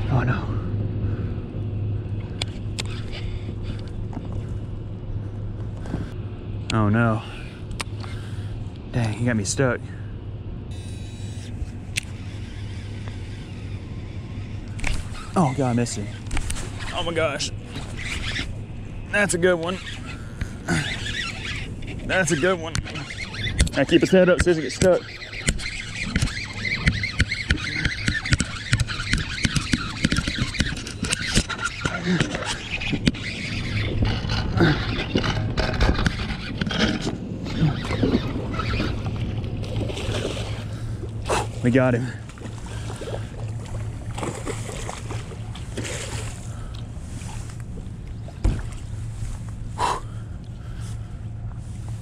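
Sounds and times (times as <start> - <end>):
low steady hum: 0.0 - 52.0
steady low rumble: 0.0 - 52.0
irregular clicks and scrapes: 24.4 - 39.0.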